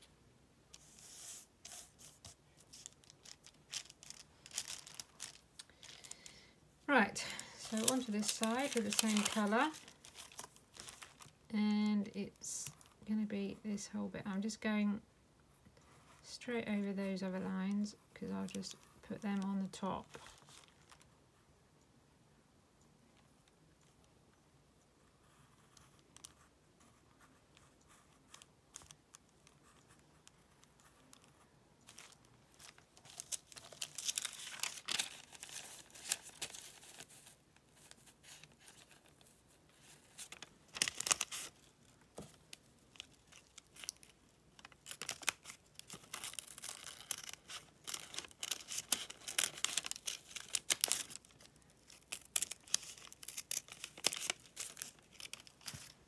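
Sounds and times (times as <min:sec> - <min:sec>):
paper crinkling and rustling: 0:00.8 - 0:06.4, 0:07.2 - 0:11.5, 0:18.4 - 0:21.1, 0:28.0 - 0:56.0.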